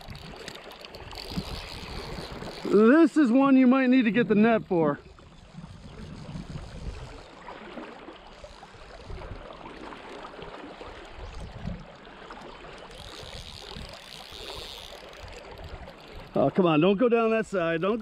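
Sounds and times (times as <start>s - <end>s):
wind rumble on microphone: 0.0s - 2.9s, 4.1s - 7.4s, 8.8s - 9.6s, 11.0s - 12.0s
river water lapping around boat: 0.0s - 18.0s.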